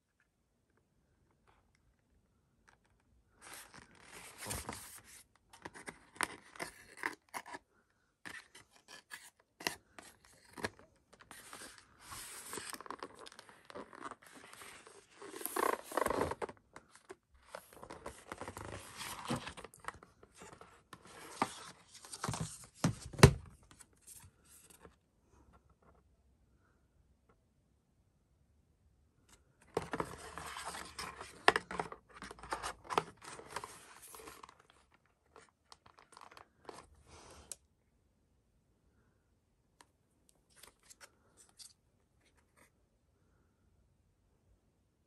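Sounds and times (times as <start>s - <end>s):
cardboard box rustles and scrapes: 11.3s - 16.6s.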